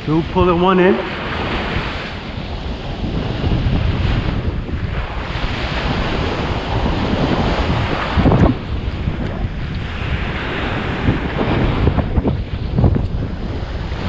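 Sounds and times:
ocean surf on beach: 0:00.0 - 0:14.0
wind buffeting microphone: 0:00.0 - 0:14.0.

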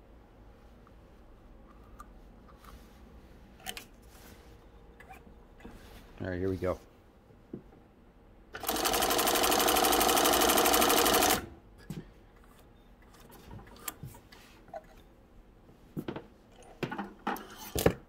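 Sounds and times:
industrial sewing machine stitching: 0:08.6 - 0:11.5.

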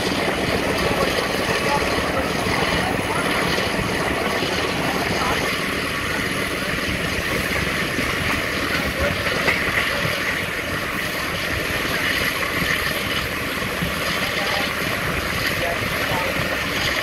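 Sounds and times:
train wheels on rails: 0:00.0 - 0:17.0.

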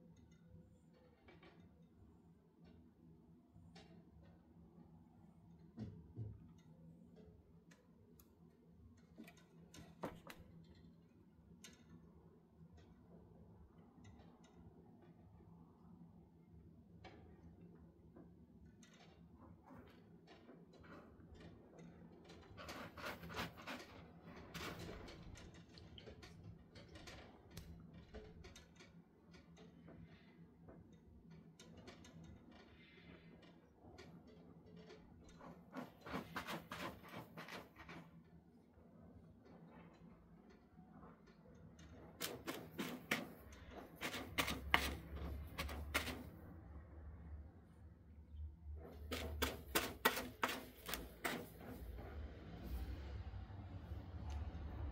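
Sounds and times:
cat scratching in litter box: 0:22.4 - 0:25.3, 0:35.3 - 0:38.1, 0:42.2 - 0:46.4, 0:48.8 - 0:53.0.

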